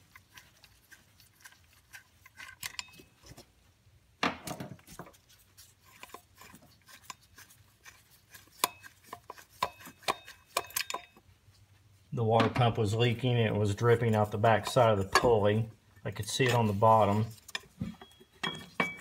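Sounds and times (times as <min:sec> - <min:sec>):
small metallic clicks and clinks: 0:02.3 - 0:03.2, 0:09.6 - 0:11.2.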